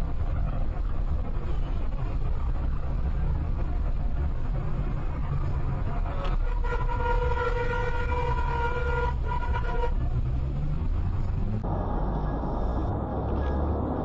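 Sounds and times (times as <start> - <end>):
car driving on highway: 0.0 - 14.0
vehicle horn blast: 6.3 - 10.0.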